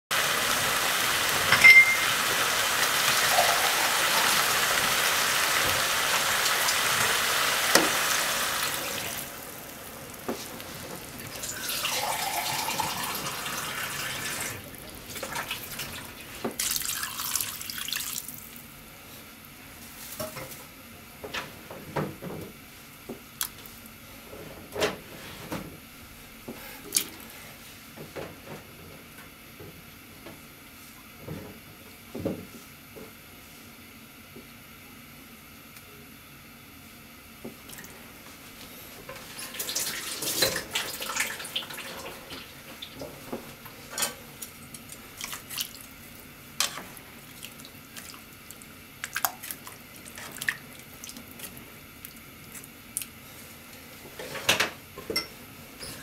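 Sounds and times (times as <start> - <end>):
water pouring into pot: 0.2 - 18.4.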